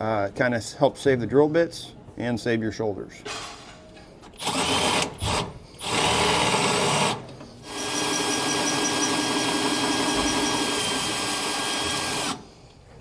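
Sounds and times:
cordless drill boring metal: 4.4 - 12.4.

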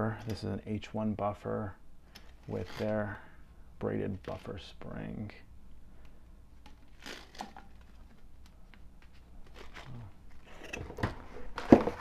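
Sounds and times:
packaging rustling: 6.8 - 12.0.

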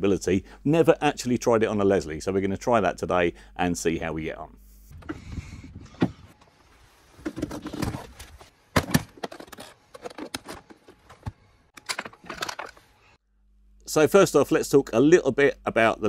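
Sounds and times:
metal case being handled: 7.2 - 12.8.

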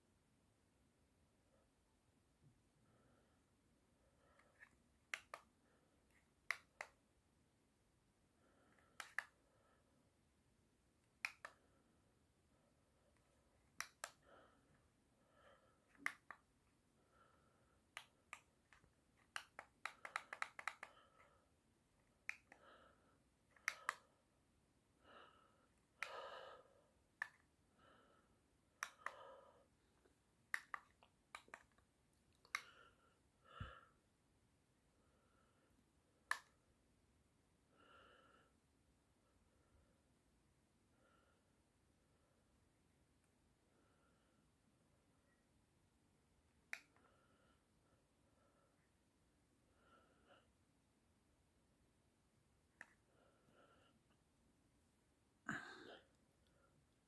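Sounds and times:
remote buttons clicking: 8.9 - 9.4, 17.9 - 20.9.

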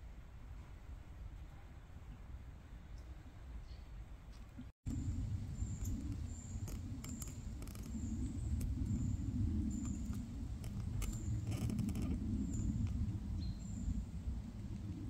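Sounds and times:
steady low rumble: 4.9 - 15.0
scattered clicks: 5.8 - 9.1, 9.8 - 12.2.

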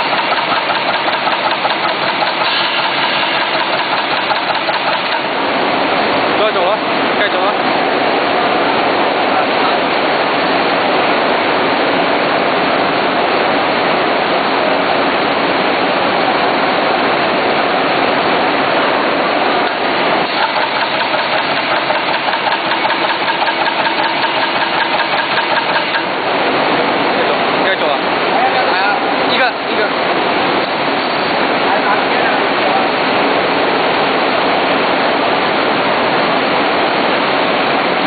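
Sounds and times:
rhythmic mechanical beat: 0.0 - 5.4, 19.6 - 26.3
welding machine running: 0.0 - 5.4, 19.7 - 26.2.

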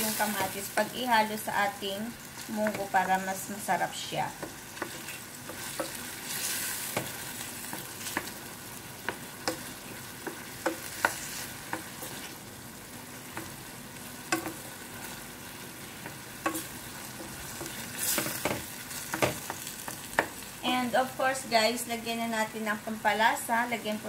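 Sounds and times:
vegetables sizzling in oil: 0.0 - 24.0
wooden spoon scraping a pan: 4.4 - 8.4, 9.0 - 12.4, 15.8 - 20.1.

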